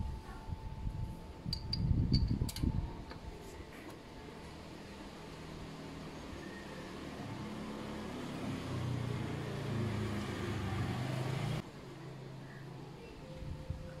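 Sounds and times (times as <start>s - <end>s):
low engine hum: 4.2s - 11.6s.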